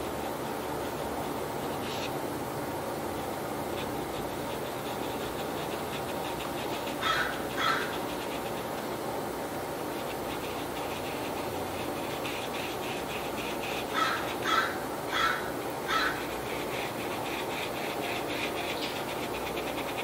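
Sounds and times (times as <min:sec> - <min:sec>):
brush scratching on paper: 0:00.0 - 0:02.1, 0:03.6 - 0:09.0, 0:09.8 - 0:14.4, 0:16.0 - 0:20.0
steady hiss: 0:00.0 - 0:20.0
short animal calls: 0:07.0 - 0:08.0, 0:13.9 - 0:16.2.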